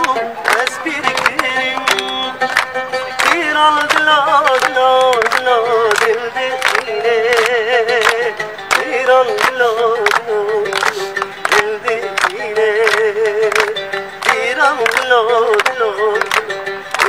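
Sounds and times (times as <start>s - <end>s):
trilled vocal melody: 0.0s - 17.0s.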